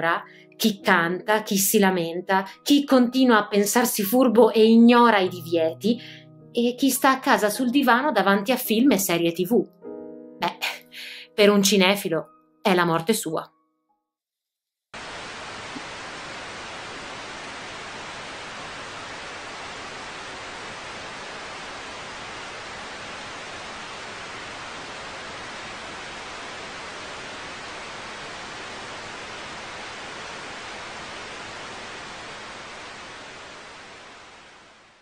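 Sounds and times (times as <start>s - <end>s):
television static hiss: 15.0s - 35.0s.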